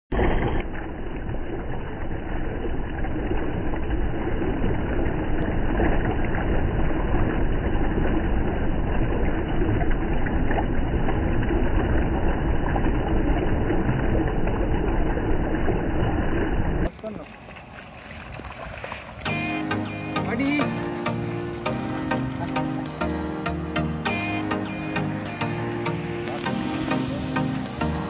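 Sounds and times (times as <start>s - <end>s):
river water rushing: 16.9s - 28.0s.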